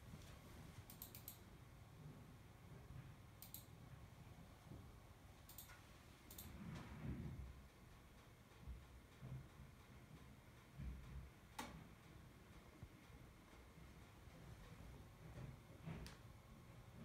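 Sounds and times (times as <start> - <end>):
faint sharp clicks: 3.4 - 3.7.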